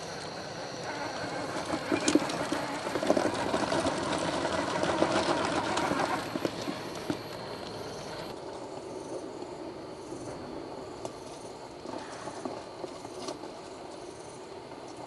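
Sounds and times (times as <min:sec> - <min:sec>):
tyres scrabbling on rock: 0:00.8 - 0:07.7.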